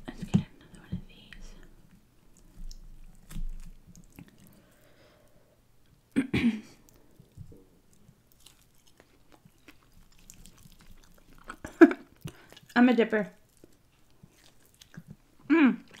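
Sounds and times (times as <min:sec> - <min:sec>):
chewing meat with mouth clicks: 0:01.9 - 0:04.9, 0:06.8 - 0:16.0.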